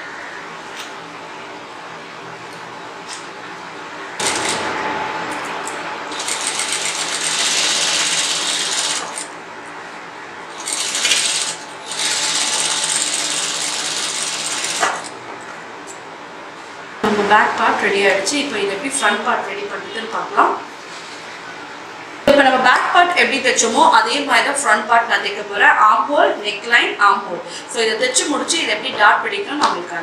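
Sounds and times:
sewing machine stitching: 0:06.1 - 0:09.2, 0:10.6 - 0:15.1.

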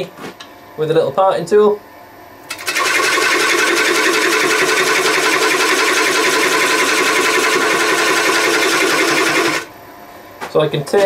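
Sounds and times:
lathe tool cutting wood: 0:02.5 - 0:09.7.

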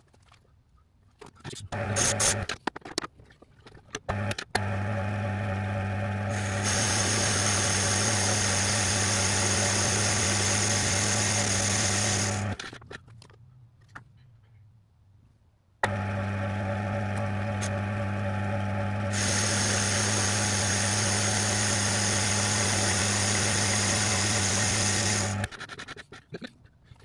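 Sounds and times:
lathe humming: 0:04.6 - 0:12.6, 0:15.8 - 0:25.5.

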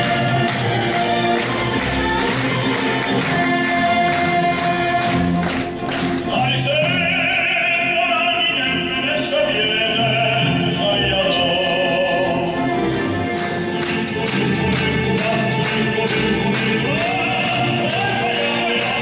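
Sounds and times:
musical accompaniment: 0:00.0 - 0:19.0
man singing into a microphone: 0:06.3 - 0:12.8.

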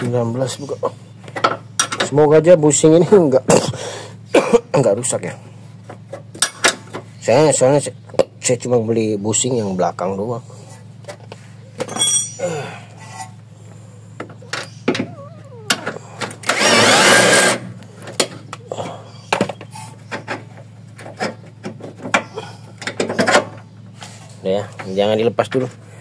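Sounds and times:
tools and metal parts clinking: 0:11.8 - 0:12.5
impact wrench burst: 0:16.4 - 0:17.7.

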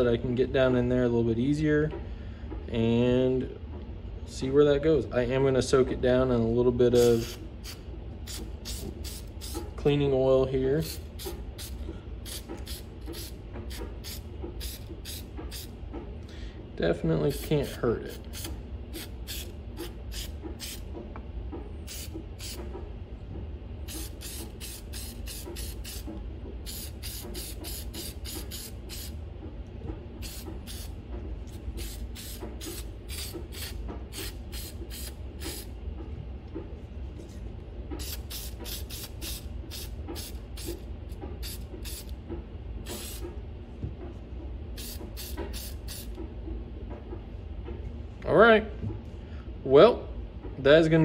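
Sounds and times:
aerosol spray hissing: 0:23.9 - 0:26.0, 0:26.7 - 0:29.1, 0:30.2 - 0:30.9, 0:31.8 - 0:35.7, 0:38.0 - 0:40.8, 0:41.4 - 0:42.1.

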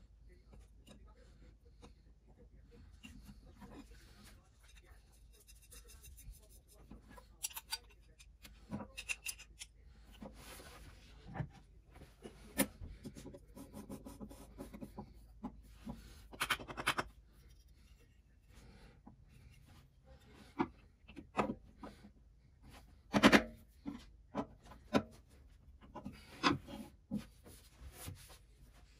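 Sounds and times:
metal parts clicking and clinking: 0:07.4 - 0:09.7.

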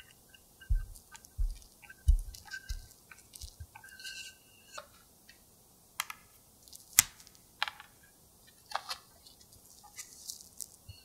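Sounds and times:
plastic wrap crinkling: 0:09.2 - 0:10.9.

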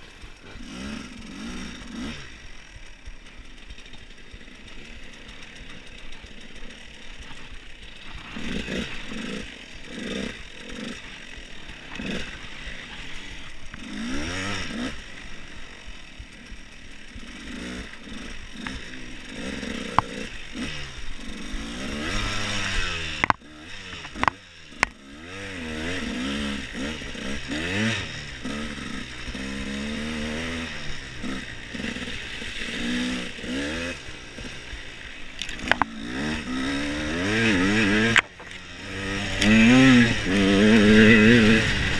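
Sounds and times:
dirt bike engine revving: 0:00.0 - 0:41.9.

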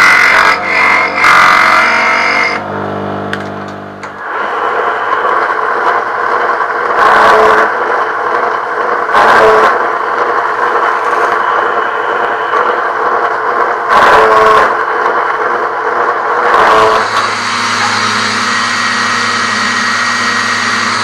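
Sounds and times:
drill press boring plastic: 0:03.3 - 0:15.2, 0:16.1 - 0:21.0.

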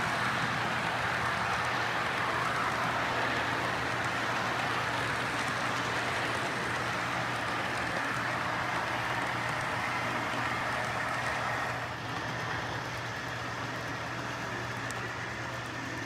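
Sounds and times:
model train wheels rolling on rail: 0:00.0 - 0:16.0
faint clicks: 0:14.7 - 0:15.1.

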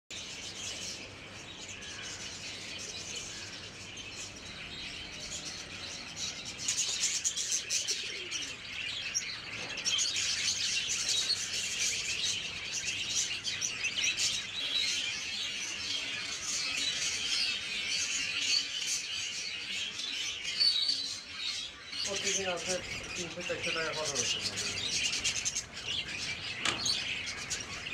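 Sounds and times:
budgerigars chirping: 0:09.0 - 0:27.9.

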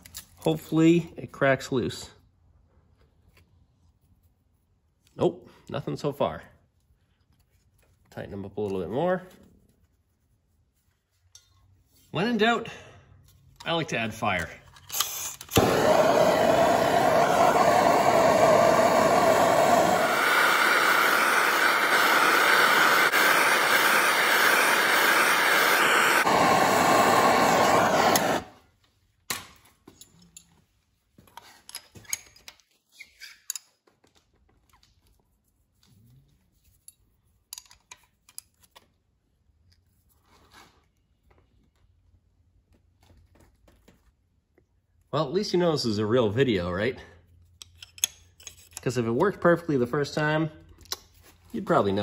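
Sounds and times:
gas torch flame hissing: 0:15.0 - 0:28.6.

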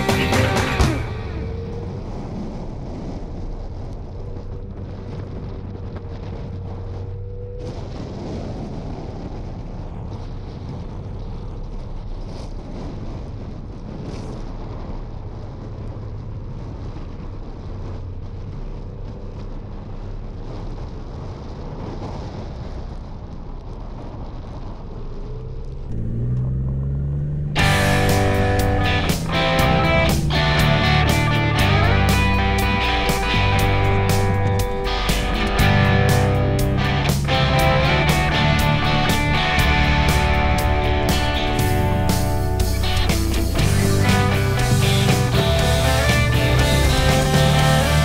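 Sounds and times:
car engine rumble: 0:00.0 - 0:08.1, 0:22.6 - 0:48.0
wind buffeting microphone: 0:00.0 - 0:48.0.

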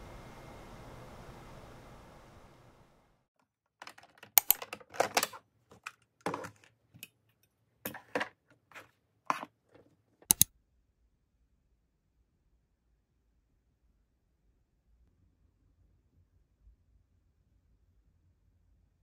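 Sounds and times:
small hard objects clicking: 0:03.8 - 0:07.1, 0:10.2 - 0:10.5.

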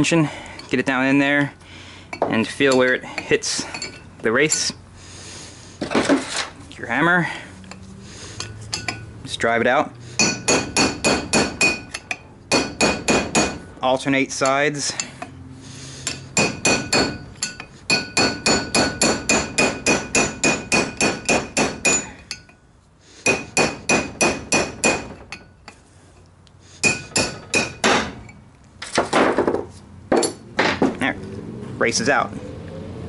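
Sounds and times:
hammer tapping on metal: 0:10.2 - 0:13.6, 0:16.0 - 0:22.6, 0:23.2 - 0:25.5, 0:26.8 - 0:28.2.

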